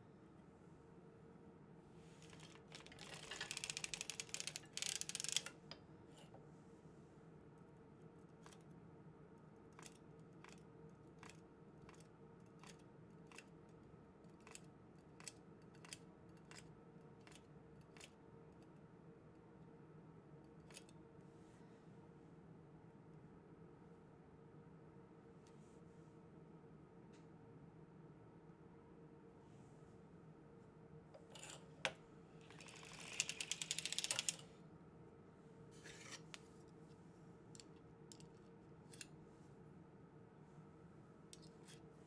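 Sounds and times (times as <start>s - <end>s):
knitting machine clattering clicks: 2.2s - 5.8s, 14.4s - 18.1s, 31.2s - 31.7s, 32.4s - 34.4s.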